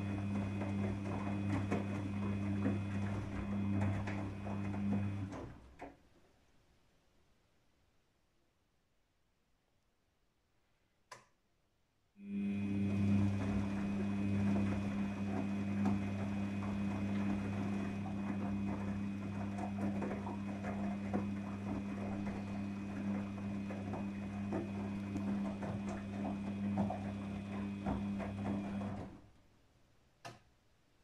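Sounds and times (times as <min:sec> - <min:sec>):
washing machine motor hum: 0:00.0 - 0:05.9, 0:12.2 - 0:29.4.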